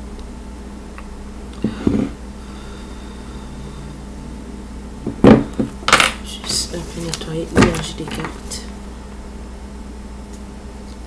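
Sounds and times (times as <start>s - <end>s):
steady low hum: 0.0s - 11.0s
objects knocking on tabletop: 5.1s - 6.2s.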